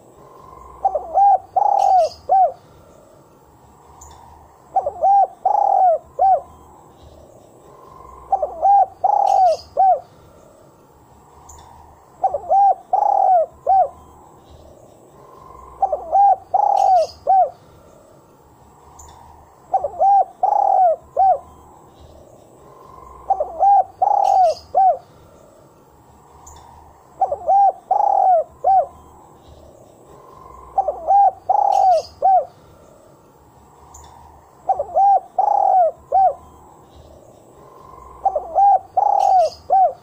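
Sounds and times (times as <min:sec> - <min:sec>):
dove cooing: 0:00.0 - 0:02.8, 0:04.1 - 0:06.6, 0:07.8 - 0:10.2, 0:12.2 - 0:14.1, 0:15.2 - 0:17.6, 0:19.0 - 0:21.6, 0:22.6 - 0:25.1, 0:26.4 - 0:29.1, 0:30.1 - 0:32.6, 0:33.9 - 0:36.6, 0:37.6 - 0:40.0
faint small bird chirps: 0:00.4 - 0:02.6, 0:03.9 - 0:10.1, 0:11.4 - 0:17.6, 0:18.9 - 0:25.0, 0:26.4 - 0:32.6, 0:33.8 - 0:40.0.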